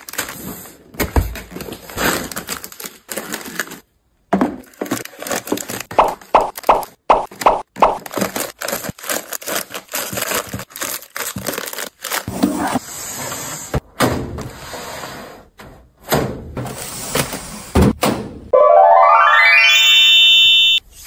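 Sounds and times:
plastic snack packets crinkling: 0:00.0 - 0:00.5, 0:01.5 - 0:04.0, 0:04.6 - 0:12.3
plastic bins knocking on shelf: 0:04.3 - 0:05.1.

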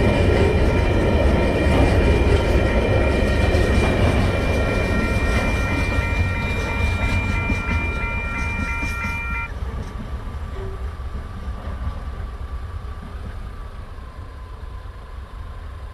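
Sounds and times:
crossing warning bell ringing: 0:00.0 - 0:09.5
freight wagons rumbling: 0:00.0 - 0:14.0.

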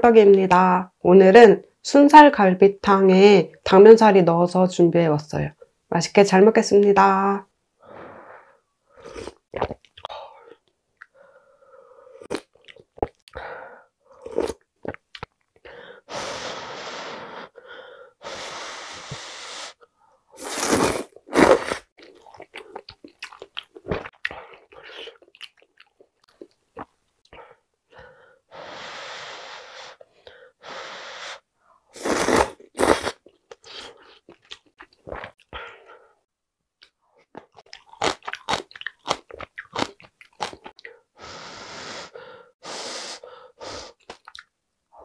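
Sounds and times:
slurping soup: 0:20.4 - 0:21.9, 0:32.0 - 0:34.3
wet chewing: 0:22.0 - 0:27.0, 0:37.4 - 0:40.9.

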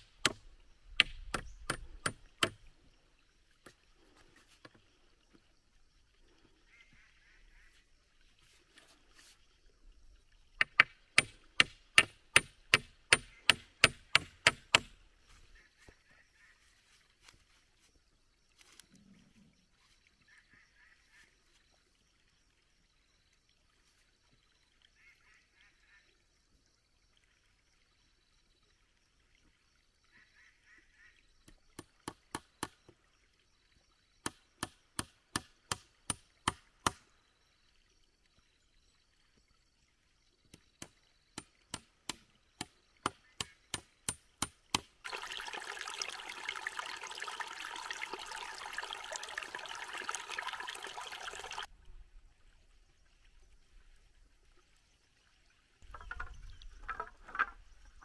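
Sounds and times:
wooden knocks on bamboo poles: 0:00.0 - 0:02.6, 0:10.6 - 0:15.0, 0:34.3 - 0:37.0, 0:55.8 - 0:57.8
stream trickling and splashing: 0:00.0 - 0:58.0.

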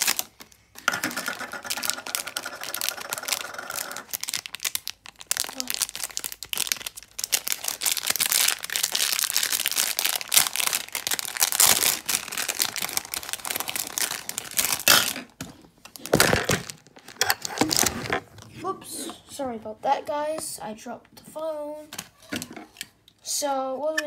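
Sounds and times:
plastic bag crinkling: 0:00.0 - 0:18.4.

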